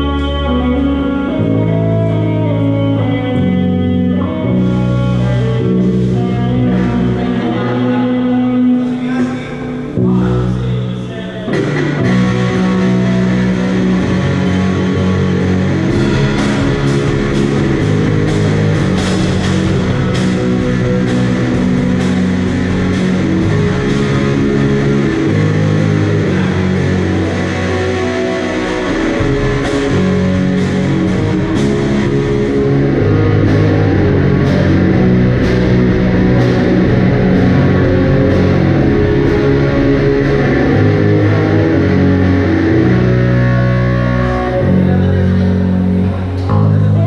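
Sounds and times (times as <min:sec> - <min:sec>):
rock band playing: 0:00.0 - 0:47.0
cymbal crashes: 0:11.7 - 0:42.4.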